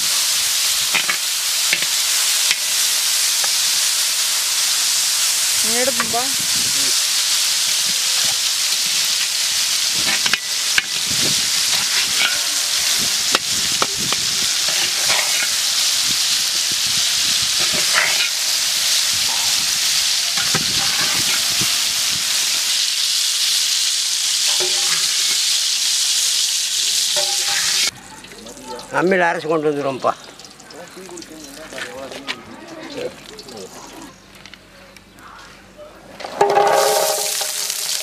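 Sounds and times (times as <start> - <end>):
food sizzling in hot oil: 0.0 - 31.8, 36.4 - 38.0
metal ladle knocking on pot: 11.8 - 15.5.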